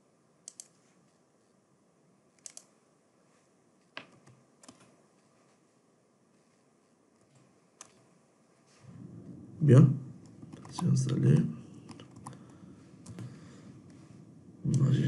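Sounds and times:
keyboard key clicks: 0.5 - 0.8, 2.4 - 2.7, 4.0 - 4.9.

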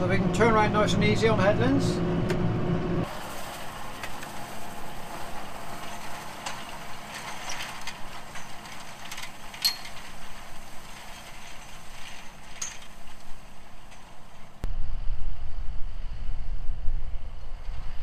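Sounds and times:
farm machinery clattering: 3.0 - 14.7.

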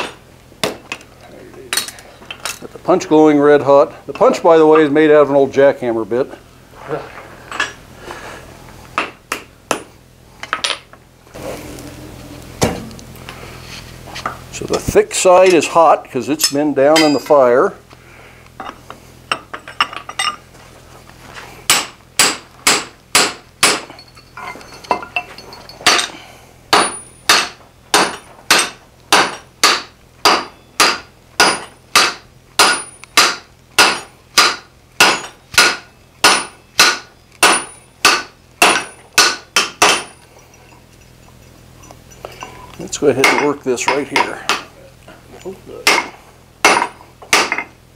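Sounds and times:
hammer striking steel on anvil: 9.0 - 9.9, 12.6 - 13.4, 16.4 - 17.5, 21.7 - 40.8, 43.2 - 44.7, 45.8 - 47.7.

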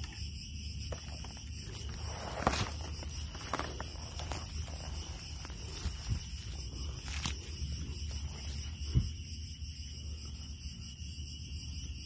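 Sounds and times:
footsteps in dry leaves: 1.6 - 8.8
twig snapping: 2.2 - 7.6.

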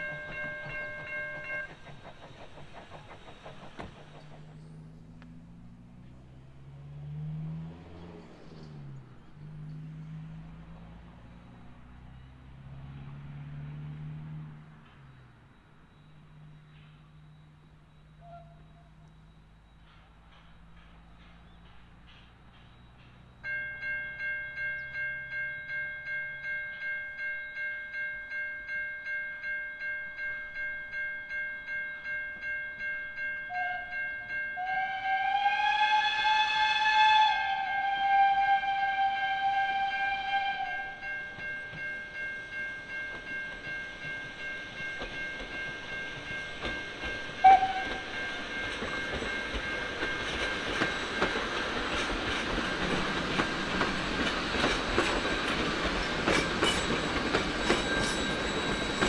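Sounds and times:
level crossing warning bell: 0.0 - 2.1, 8.8 - 35.4, 39.8 - 59.0
train rumble and wheel clatter: 0.0 - 59.0
steam whistle blast: 18.2 - 19.0, 34.6 - 41.1, 47.4 - 48.0.

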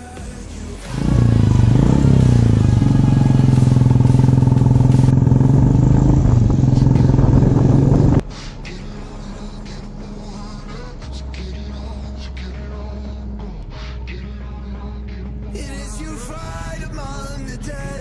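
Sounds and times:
motorcycle engine revving: 0.8 - 8.2
faint background music: 8.2 - 18.0.

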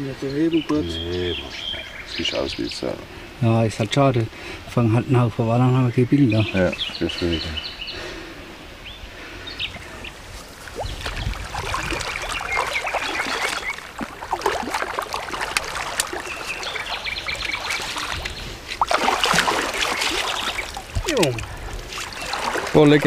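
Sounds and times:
river water splashing: 9.8 - 23.0.

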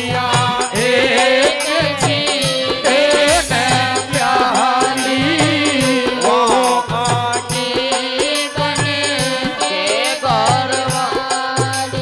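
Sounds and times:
hand drum beat: 0.0 - 9.6.

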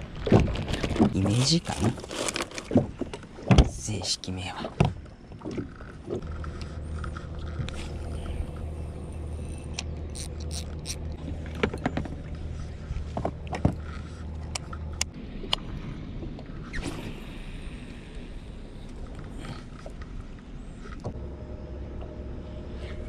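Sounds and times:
outboard motor humming: 0.0 - 23.0
clicks and knocks of gear: 0.1 - 3.7.

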